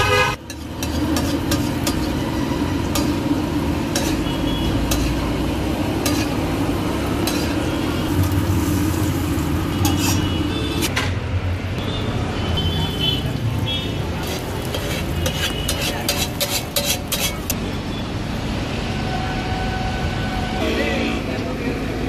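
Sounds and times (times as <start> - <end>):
steel spatula scraping and tapping: 0.4 - 3.3, 3.9 - 5.3, 6.0 - 6.5, 7.2 - 8.4, 9.7 - 11.0, 14.2 - 17.6
eggs sizzling on hot iron: 0.4 - 10.8, 14.0 - 17.6.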